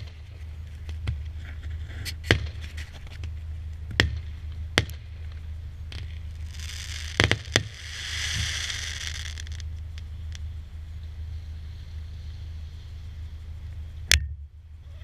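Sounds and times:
crackling hiss: 0.0s - 15.0s
fireworks bangs: 2.1s - 2.7s, 3.9s - 9.7s.

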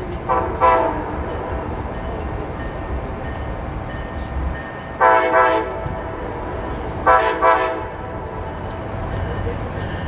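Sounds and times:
train horn: 0.3s - 1.2s, 5.0s - 6.0s, 7.0s - 8.1s.

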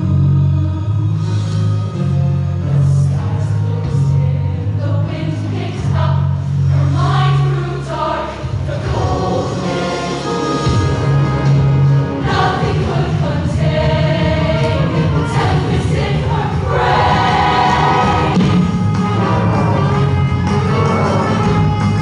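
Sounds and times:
band with steady bass line: 0.0s - 22.0s
women's choir singing: 2.6s - 11.0s, 12.1s - 18.6s.

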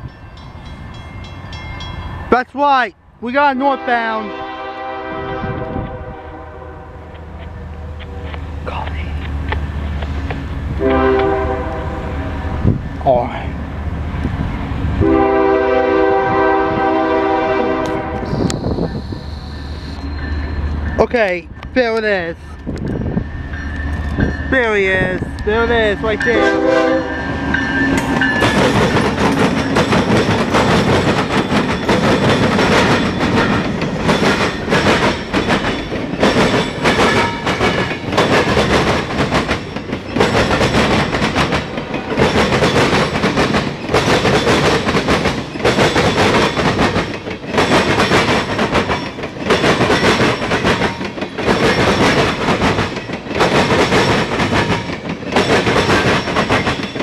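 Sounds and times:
diesel locomotive rumbling: 0.0s - 57.0s
train wheels clattering over track: 16.4s - 57.0s.

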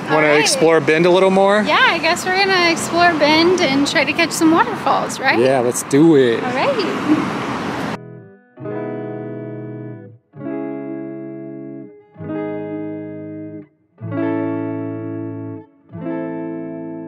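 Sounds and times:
guitar chords: 0.0s - 1.0s, 6.5s - 17.0s.

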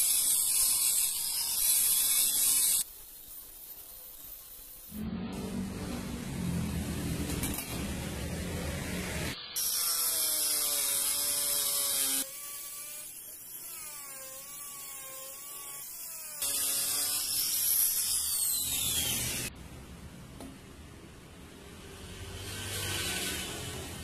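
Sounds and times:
angle grinder grinding metal: 0.0s - 2.8s, 9.2s - 19.5s.

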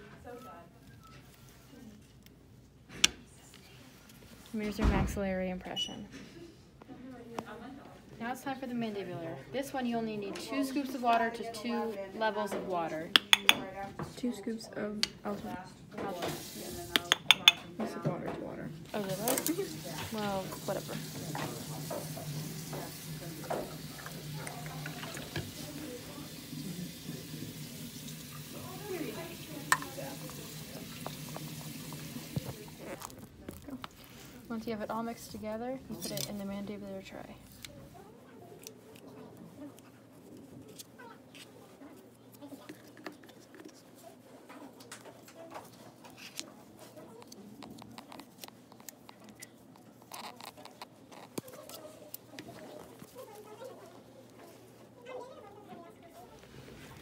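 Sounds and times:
faint background voices: 6.0s - 57.0s
water trickling: 19.0s - 33.1s.

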